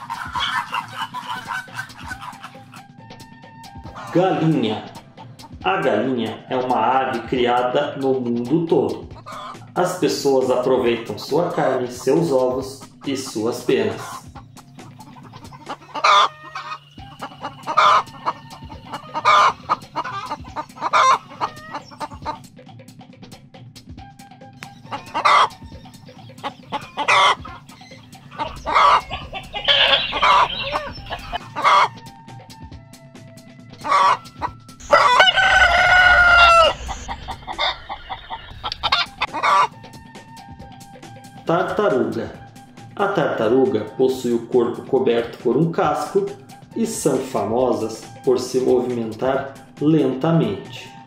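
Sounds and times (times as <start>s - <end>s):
hens clucking: 0.0s - 3.0s, 3.8s - 22.5s, 24.6s - 32.0s, 33.8s - 39.9s
chickens calling: 0.0s - 22.6s, 24.6s - 32.2s, 33.7s - 40.5s
rooster crowing: 16.0s - 19.6s, 28.4s - 32.0s, 34.8s - 39.8s.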